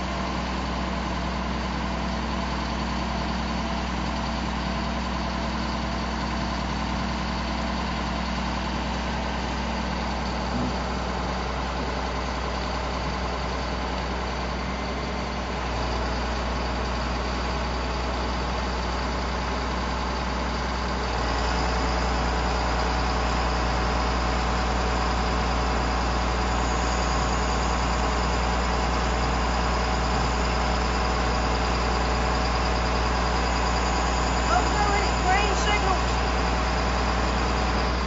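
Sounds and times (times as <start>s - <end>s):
truck engine running: 0.0s - 38.0s.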